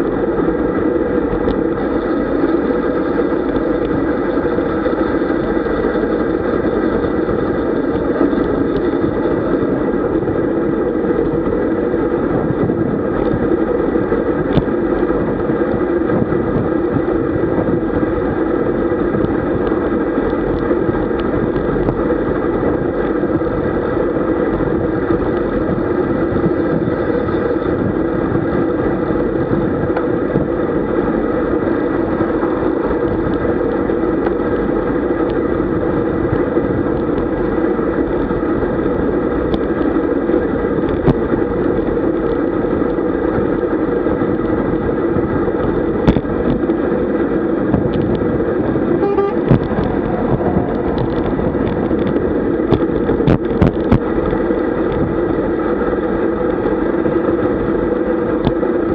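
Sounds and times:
bicycle tyre and road noise: 0.0 - 58.9
wind rushing over microphone: 0.0 - 58.9.

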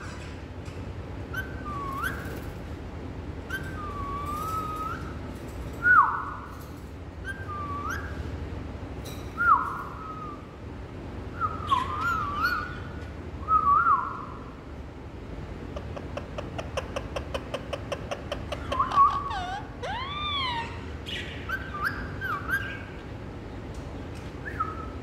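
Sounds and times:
parakeet whistling: 1.3 - 2.4, 3.5 - 5.2, 7.2 - 8.3, 9.4 - 10.5, 11.4 - 14.4, 18.6 - 23.0, 24.4 - 25.0.

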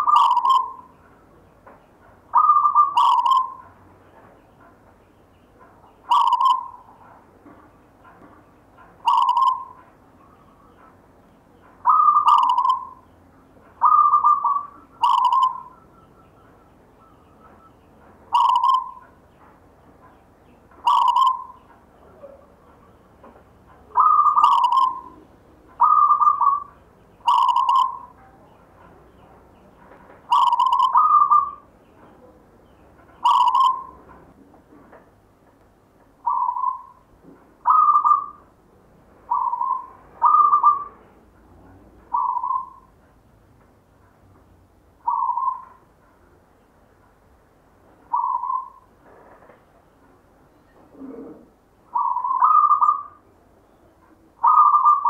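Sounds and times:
dove cooing: 0.0 - 0.9, 2.3 - 3.8, 6.1 - 7.1, 9.0 - 10.9, 11.8 - 13.0, 13.8 - 16.3, 18.3 - 19.2, 20.8 - 22.6, 23.9 - 28.2, 30.3 - 31.7, 33.2 - 34.0, 36.2 - 37.0, 37.6 - 38.5, 39.3 - 41.1, 42.1 - 42.9, 45.0 - 45.8, 48.1 - 48.9, 50.8 - 53.2, 54.4 - 55.0.

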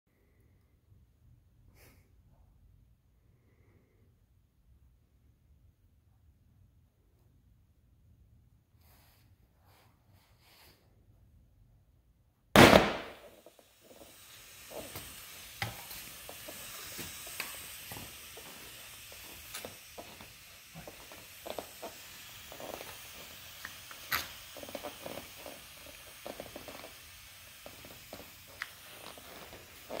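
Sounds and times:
faint steady hiss: 0.1 - 30.0
airbag bang with gas rush: 12.6 - 30.0.

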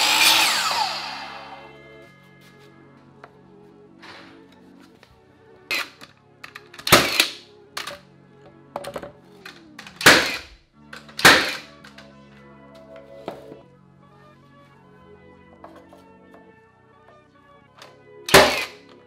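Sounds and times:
background music: 0.0 - 19.0
nail gun shots: 6.8 - 7.4, 9.9 - 10.5, 11.1 - 11.8, 18.3 - 18.8.

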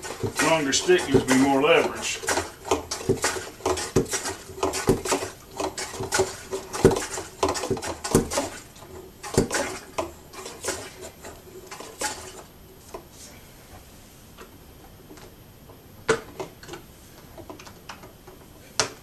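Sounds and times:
plunger washer knocking and clattering: 0.0 - 12.5.

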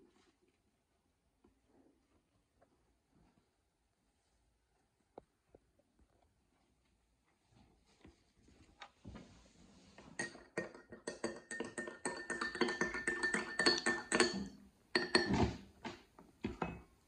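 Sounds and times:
spoon clinking in glass mug: 10.2 - 15.5.

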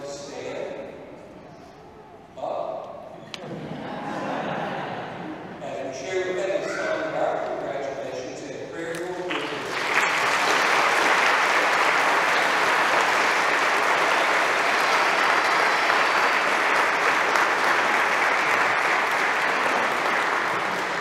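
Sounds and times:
congregation applauding: 9.0 - 21.0.

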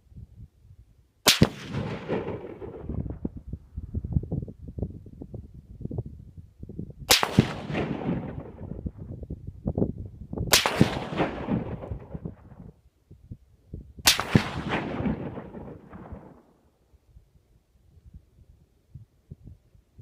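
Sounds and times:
rifle shots: 1.2 - 3.0, 7.1 - 8.8, 10.5 - 12.4, 14.1 - 16.4.

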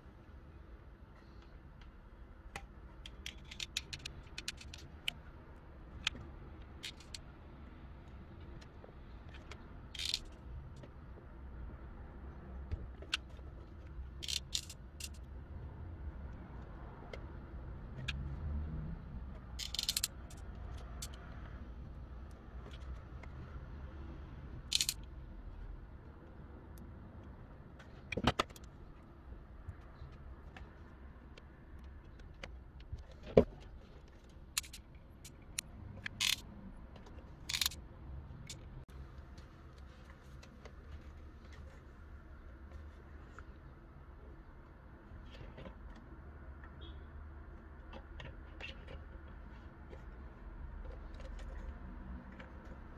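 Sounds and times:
small handling clicks: 2.6 - 5.2, 8.5 - 11.0, 14.2 - 15.3, 19.4 - 21.2, 24.7 - 25.1, 31.3 - 37.8
small clicks: 24.7 - 25.1.

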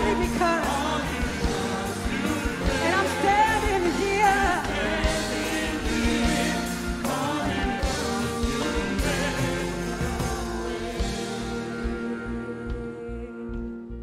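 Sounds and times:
steady drum beat: 0.0 - 13.8
sustained keyboard chords: 0.0 - 14.0
woman singing into microphone: 2.7 - 4.7.

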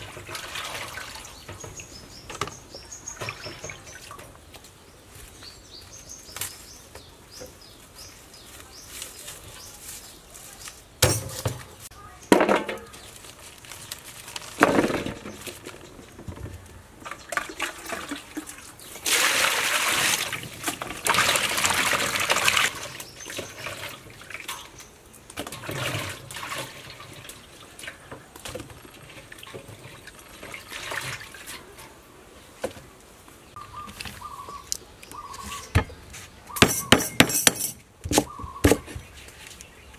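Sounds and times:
kitchen knocks and clatters: 11.0 - 13.1, 36.6 - 39.0
pot of water boiling: 17.0 - 32.0.

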